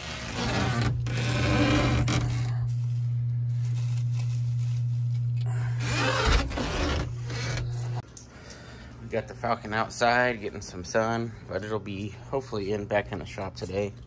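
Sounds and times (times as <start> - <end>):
wood shavings rustling: 0.0 - 7.8
low hum: 0.0 - 9.5.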